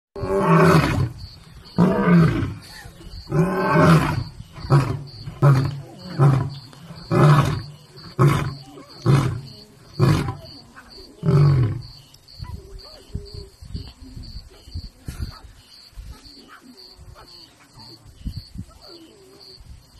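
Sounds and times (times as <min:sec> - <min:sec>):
lion roaring: 0:00.2 - 0:10.5, 0:11.2 - 0:11.9.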